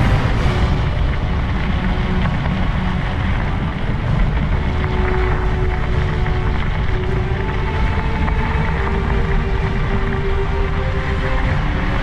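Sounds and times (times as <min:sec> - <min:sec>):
bicycle tyres on gravel: 0:00.0 - 0:12.0
wind buffeting microphone: 0:00.0 - 0:12.0.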